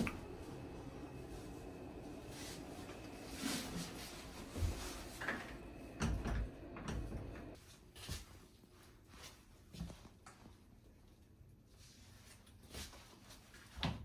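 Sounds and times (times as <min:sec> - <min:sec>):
steady low hum: 0:00.0 - 0:07.6.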